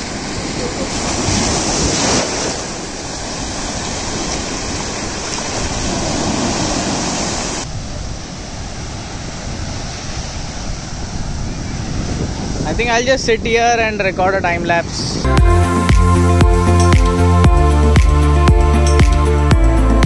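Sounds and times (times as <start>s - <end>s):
surf rushing in shallow water: 0.0s - 15.3s
waves breaking: 0.0s - 17.4s.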